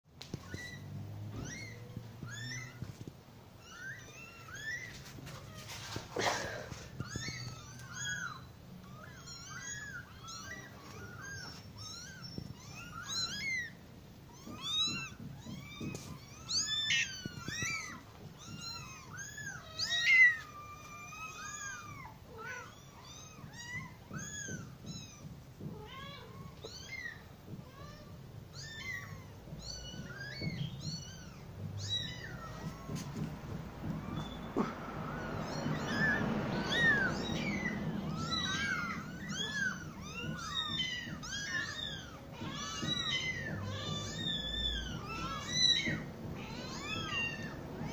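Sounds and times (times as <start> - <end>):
kittens meowing: 0.2 - 47.9.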